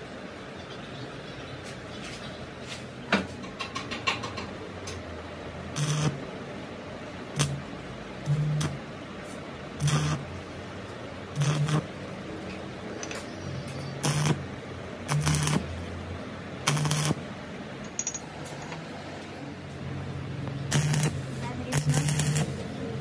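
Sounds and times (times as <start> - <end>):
welding arc crackle: 5.7 - 6.2, 7.4 - 8.8, 9.8 - 10.4, 11.3 - 12.1, 13.7 - 16.0, 16.6 - 17.3, 20.6 - 23.0
welder electrical buzz: 5.7 - 6.3, 7.3 - 8.9, 9.8 - 10.6, 11.3 - 12.2, 13.6 - 16.0, 16.6 - 17.3, 20.6 - 23.0.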